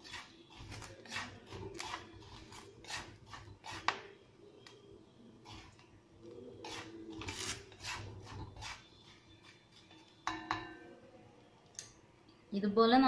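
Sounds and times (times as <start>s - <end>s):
spatula scraping chickpeas in salt: 0.0s - 10.2s.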